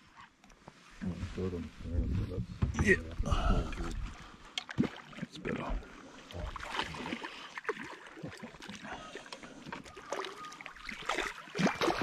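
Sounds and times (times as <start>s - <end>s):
fish splashing at water surface: 6.4s - 12.0s
water slaps: 10.0s - 12.0s.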